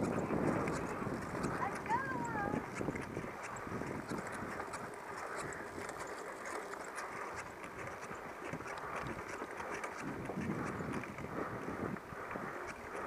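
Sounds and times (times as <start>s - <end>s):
light ticks and rattles: 0.0s - 13.0s
bike tyre and wind hiss: 8.0s - 13.0s.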